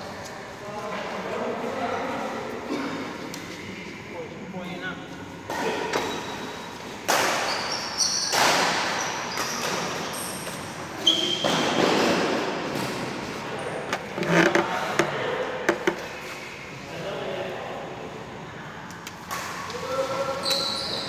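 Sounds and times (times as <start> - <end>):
shuttlecock hits echoing: 5.4 - 10.6
shoes squeaking on court floor: 5.8 - 15.0, 20.2 - 21.0.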